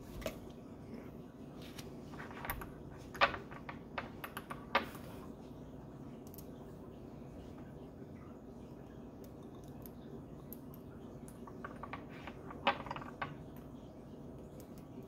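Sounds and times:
faint room hum: 0.0s - 15.0s
lab containers clicking: 2.2s - 5.1s, 9.2s - 13.7s.

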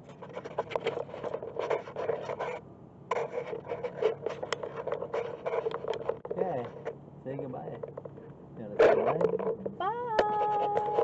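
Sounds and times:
rasping scrapes: 0.0s - 6.9s, 10.2s - 11.0s.

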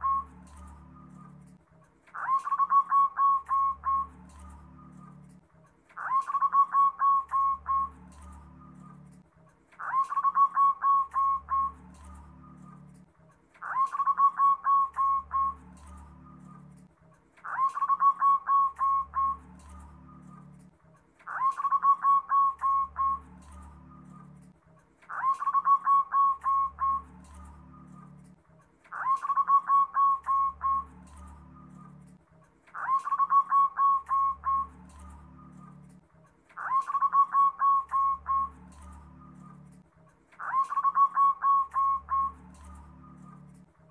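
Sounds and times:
dove cooing song: 0.0s - 5.4s, 6.0s - 9.2s, 9.8s - 39.8s, 40.4s - 43.7s.

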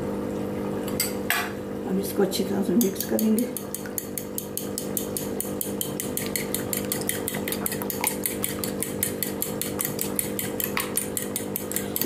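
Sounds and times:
whisk clicking against glass bowl: 2.8s - 12.0s.

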